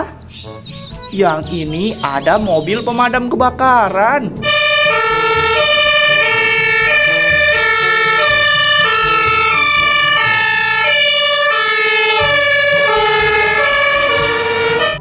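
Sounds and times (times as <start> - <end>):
toy siren beeping tone: 4.4 - 15.0.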